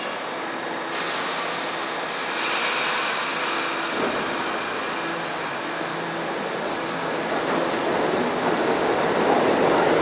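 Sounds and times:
subway train pulling out: 0.0s - 10.0s
loud air hiss: 0.9s - 7.1s.

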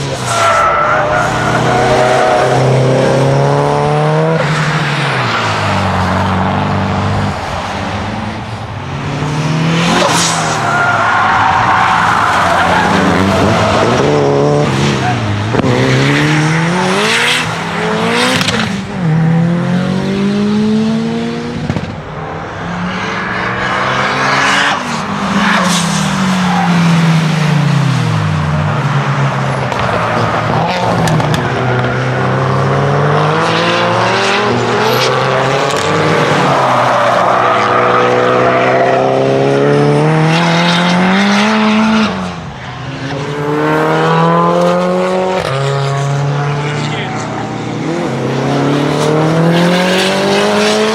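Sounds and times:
car engine revving: 0.0s - 8.2s, 9.0s - 50.9s.

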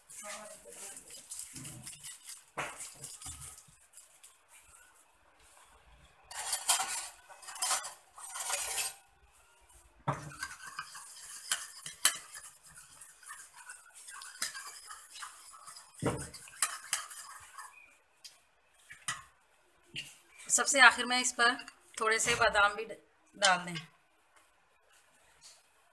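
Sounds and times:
metal utensil scraping steel pot: 0.1s - 3.6s, 6.3s - 9.1s, 10.1s - 18.0s.

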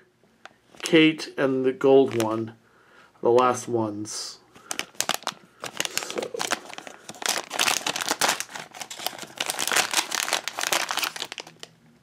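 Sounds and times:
plastic bag crinkling: 2.0s - 2.5s, 4.6s - 11.7s.

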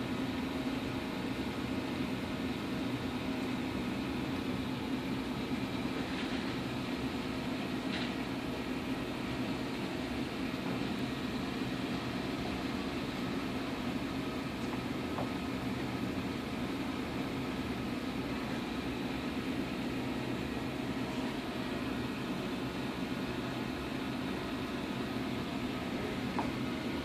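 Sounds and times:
machinery humming and hissing: 0.0s - 27.0s.

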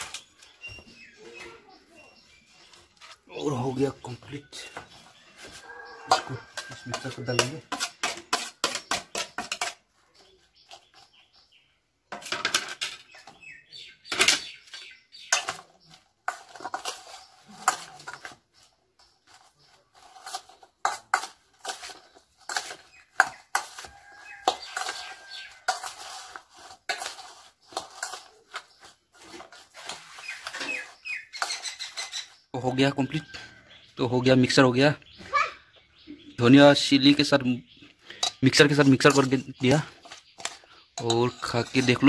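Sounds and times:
metal clinking and scraping: 4.0s - 9.9s, 12.1s - 13.4s, 14.0s - 32.4s, 38.1s - 42.0s.

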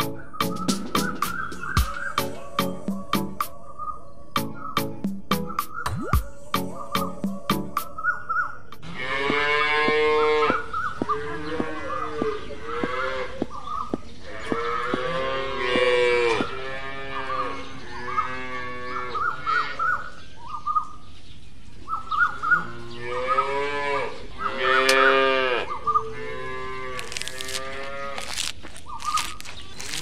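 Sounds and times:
cattle mooing: 8.8s - 13.4s, 14.2s - 19.8s, 22.6s - 28.3s.

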